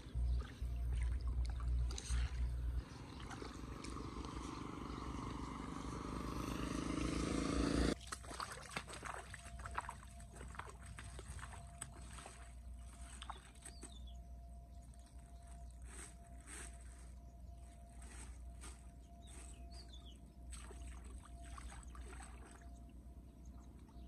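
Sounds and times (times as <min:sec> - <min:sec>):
footsteps splashing through water: 0:00.3 - 0:04.6, 0:08.0 - 0:14.0, 0:19.4 - 0:22.7
motorbike engine drone: 0:01.7 - 0:08.0.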